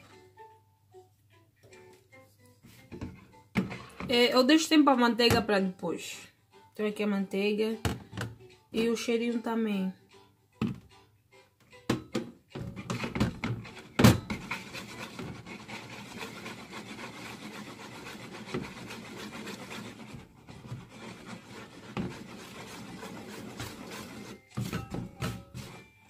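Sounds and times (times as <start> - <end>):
whisk scraping in plastic bowl: 3.6 - 4.2, 12.6 - 25.9
whisk knocking bowl: 12.5 - 25.8.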